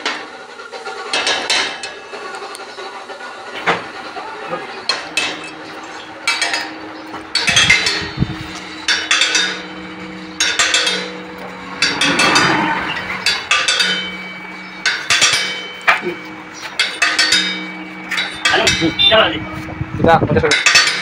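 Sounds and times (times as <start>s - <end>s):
hammer clanking on metal: 1.0s - 2.0s, 4.9s - 19.4s, 20.4s - 21.0s.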